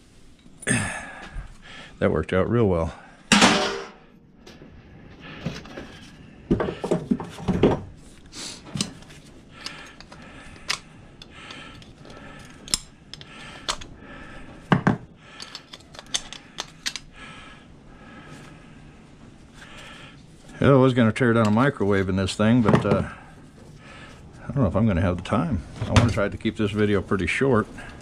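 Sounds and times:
metal parts clattering on workbench: 0:03.3 - 0:04.0.

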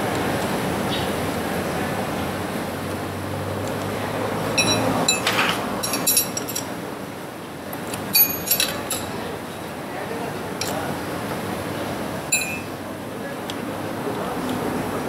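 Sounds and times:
ringing metallic clinks: 0:04.6 - 0:06.7, 0:08.1 - 0:09.2, 0:12.3 - 0:12.8.

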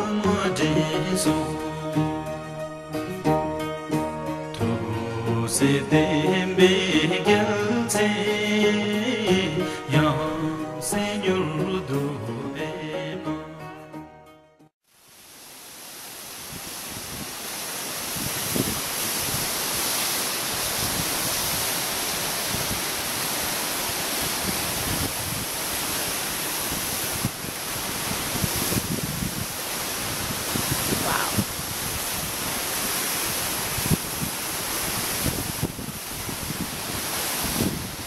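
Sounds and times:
wind gusting on microphone: 0:16.4 - 0:38.0.

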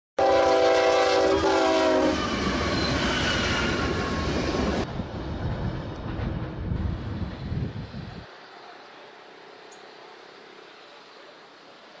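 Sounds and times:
locomotive air horn: 0:00.2 - 0:02.4
train rumbling: 0:00.2 - 0:12.0.

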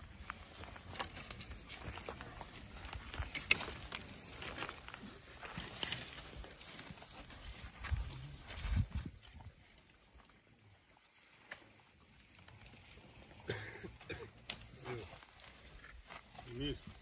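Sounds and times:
twigs and wood snapping: 0:00.0 - 0:09.1, 0:14.1 - 0:17.0
leaves rustling: 0:00.0 - 0:17.0.

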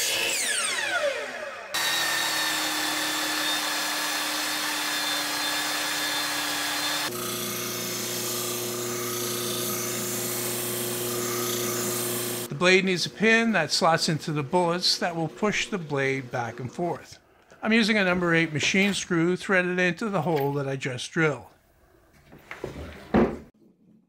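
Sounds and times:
belt sander running: 0:00.0 - 0:12.5
miter saw blade spinning down: 0:00.0 - 0:12.5
disc sander humming: 0:00.0 - 0:17.0.

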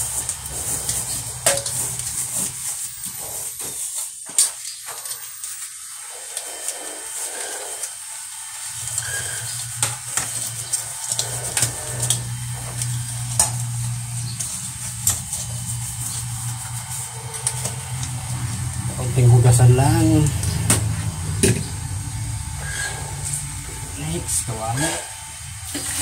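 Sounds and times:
steady low hum: 0:08.7 - 0:26.0
water running into a sink: 0:24.0 - 0:26.0.

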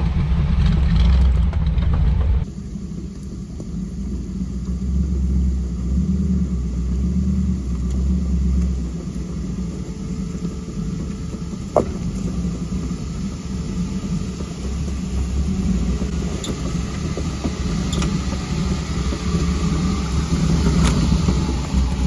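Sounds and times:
engine rumbling: 0:00.0 - 0:22.0
sharp knock: 0:11.8 - 0:12.1.

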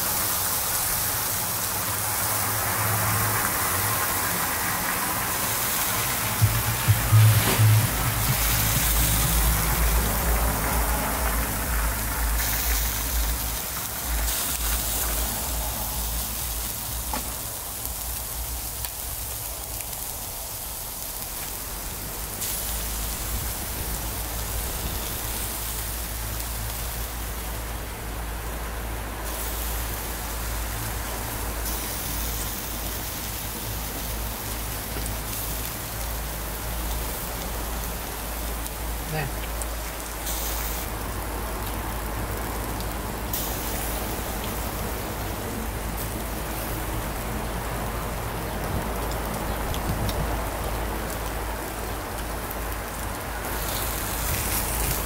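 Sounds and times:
meat sizzling on a grill: 0:00.0 - 0:55.0.

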